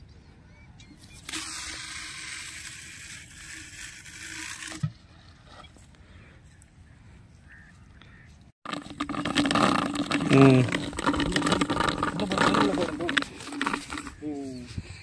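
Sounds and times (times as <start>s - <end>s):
fishing reel whirring: 1.1s - 4.8s, 8.8s - 14.3s.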